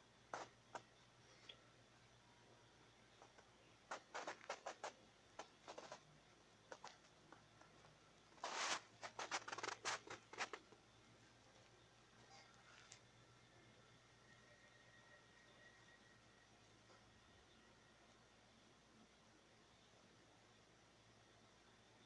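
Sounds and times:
low steady hum: 0:00.0 - 0:22.0
small clicks and scratches: 0:00.3 - 0:01.7, 0:03.1 - 0:13.2.

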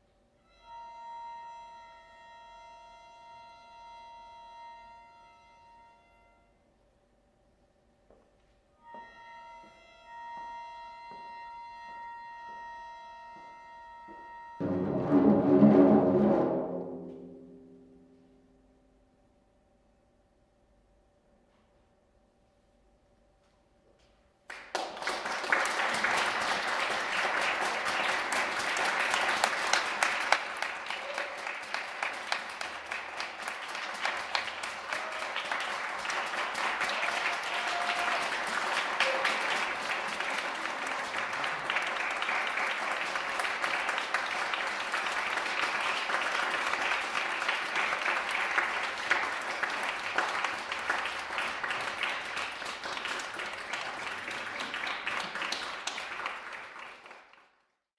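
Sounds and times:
audience applauding: 0:24.5 - 0:57.7.

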